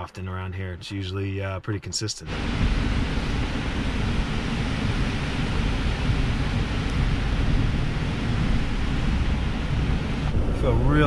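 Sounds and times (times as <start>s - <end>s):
wind gusting through trees: 2.2s - 11.0s
rain falling: 2.3s - 11.0s
wind buffeting microphone: 2.3s - 11.0s.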